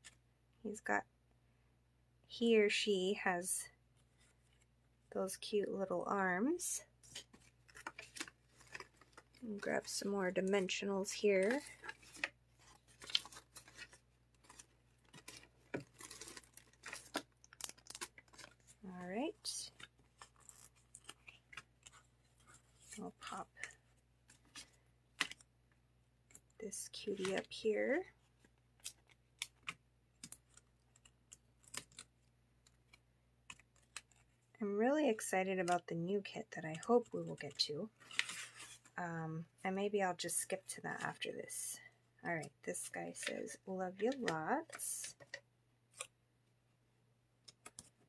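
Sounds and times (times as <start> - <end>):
paper card rustling: 7.0 - 25.5.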